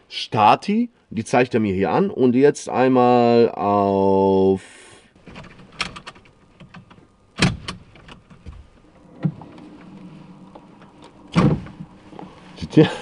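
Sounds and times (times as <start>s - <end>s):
thump: 11.3s - 11.9s.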